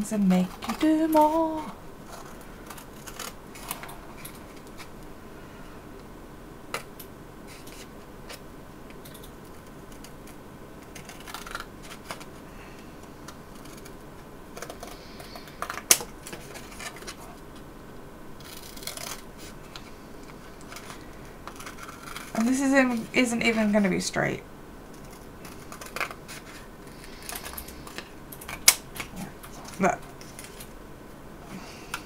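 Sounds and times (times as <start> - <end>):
scissors cutting cardboard: 9.9 - 12.3, 13.5 - 17.3.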